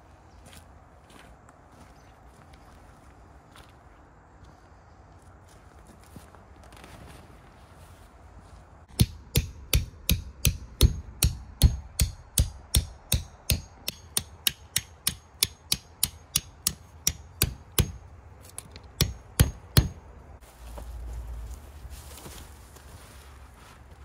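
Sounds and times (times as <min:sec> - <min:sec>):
hammer striking metal stake: 0:08.9 - 0:18.1, 0:18.9 - 0:20.0.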